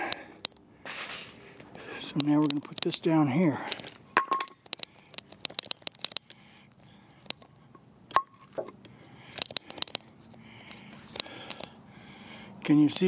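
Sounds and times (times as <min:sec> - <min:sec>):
light clicks and taps: 0:01.6 - 0:03.0, 0:04.6 - 0:07.8, 0:08.8 - 0:11.8
wooden board knocking on concrete: 0:04.2 - 0:04.6.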